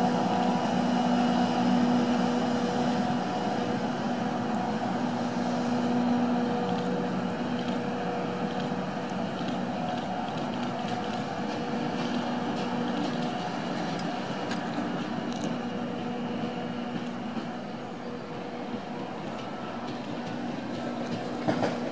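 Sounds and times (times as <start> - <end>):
electric locomotive humming: 0.0 - 21.9
wheels clicking over rails: 6.4 - 21.9.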